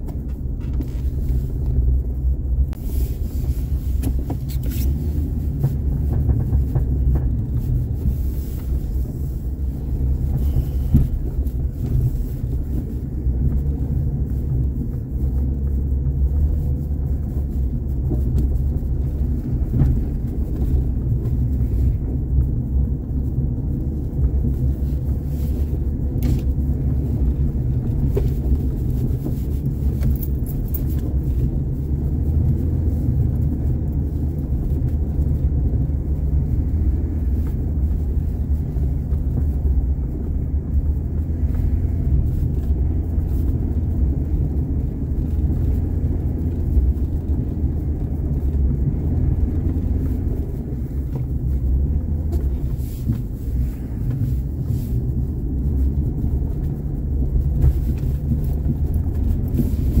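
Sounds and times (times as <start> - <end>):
car engine rumble: 0.0 - 60.0
road noise: 0.0 - 60.0.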